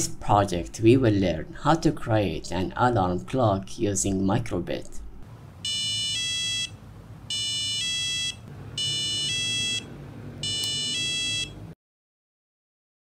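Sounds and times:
alarm clock two-note electronic beep: 5.7s - 6.7s, 7.3s - 11.6s.

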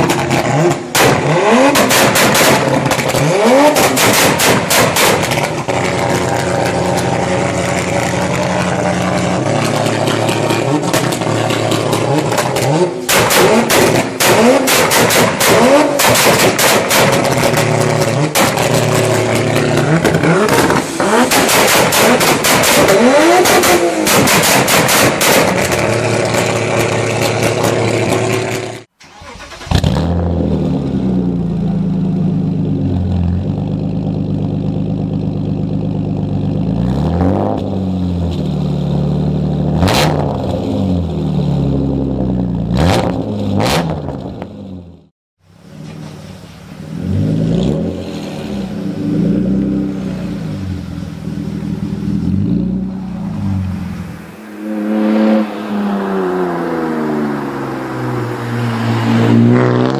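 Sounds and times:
car accelerating: 0.0s - 44.8s, 45.5s - 59.9s
exhaust cracks: 0.0s - 44.9s
car engine revving: 0.0s - 59.9s.

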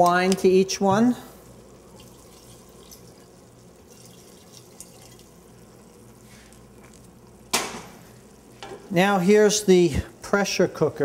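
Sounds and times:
wine trickling from bottle: 1.5s - 7.4s
light drips: 1.5s - 7.5s.

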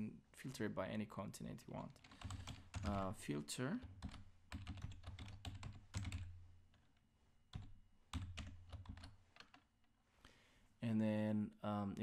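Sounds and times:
keyboard typing: 1.7s - 6.9s, 7.5s - 9.7s.

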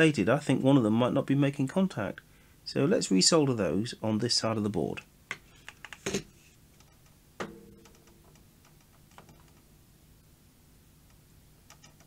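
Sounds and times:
tool knock on workbench: 7.4s - 7.8s.

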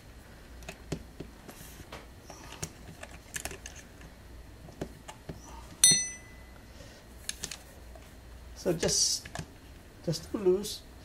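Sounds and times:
metal wrench clinking down: 5.8s - 6.4s.

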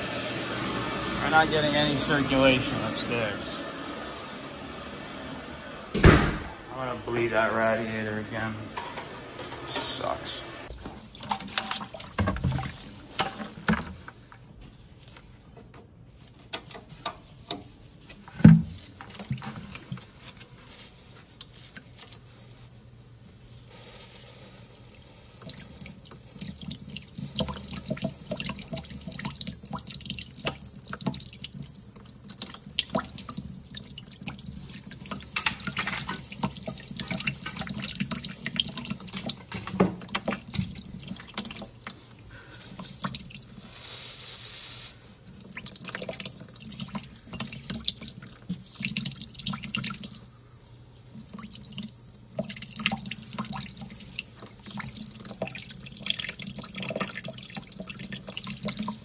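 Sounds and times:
water dripping into bucket: 11.1s - 13.9s, 25.4s - 43.7s, 45.0s - 59.0s.

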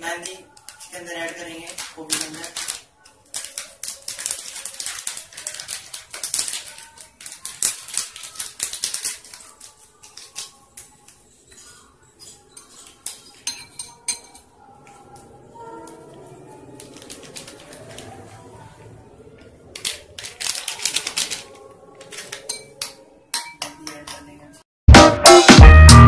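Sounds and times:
packets crinkling: 0.0s - 13.4s, 19.4s - 22.6s
scissors snipping sachets: 0.2s - 11.8s
background music: 20.7s - 26.0s.

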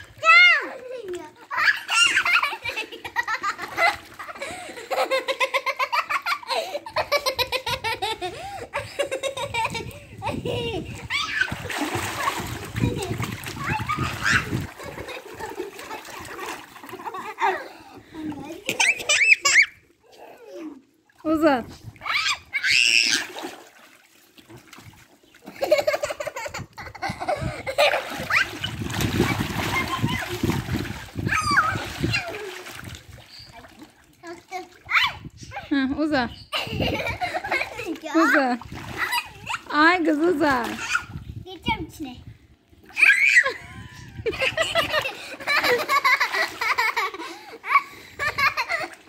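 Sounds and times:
girl laughing: 1.6s - 11.4s, 25.5s - 28.6s, 36.5s - 38.3s, 43.2s - 49.0s.

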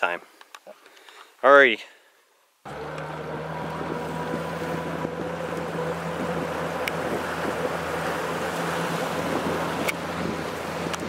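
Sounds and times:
outboard motor running: 2.7s - 11.0s
water rushing along hull: 2.7s - 11.0s
wind on microphone: 3.5s - 11.0s.

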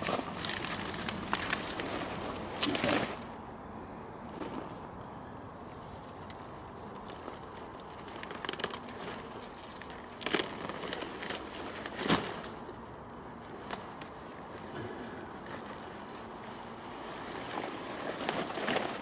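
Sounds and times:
stalks and roots cracking: 0.0s - 3.3s, 6.2s - 19.0s
leaves rustling: 0.0s - 19.0s.

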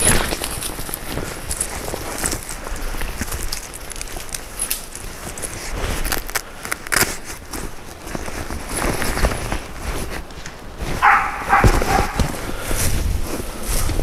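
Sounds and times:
footsteps through dry brush: 0.0s - 14.0s
dog barking: 11.0s - 12.3s.

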